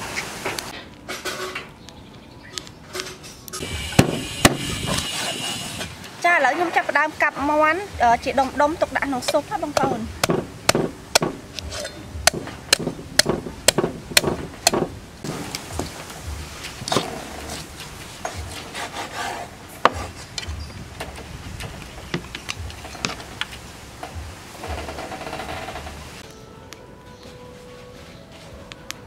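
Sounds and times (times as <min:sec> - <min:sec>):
cleaver chopping on wooden board: 0:09.2 - 0:14.9.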